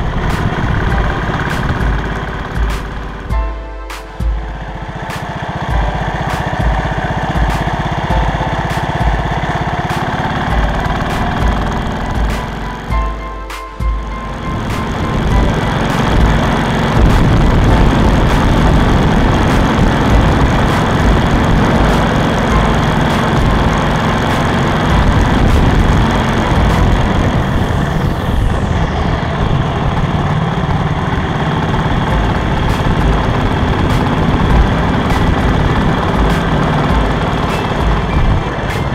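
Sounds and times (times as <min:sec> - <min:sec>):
wind noise: 0:00.0 - 0:03.5, 0:13.8 - 0:38.9
motorcycle engine running: 0:00.0 - 0:38.9.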